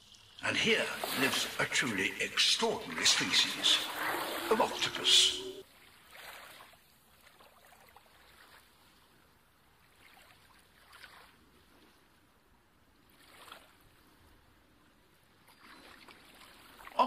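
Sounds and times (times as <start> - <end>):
faint trickling water: 0.0 - 11.3.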